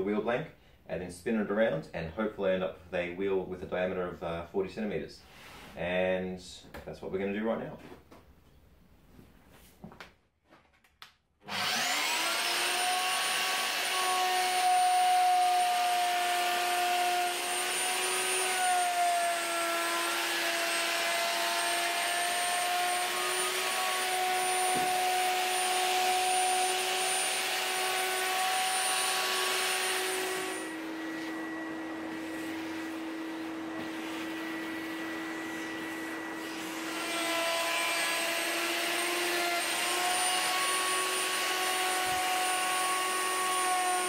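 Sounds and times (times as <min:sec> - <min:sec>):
router motor whining: 0:11.4 - 0:44.0.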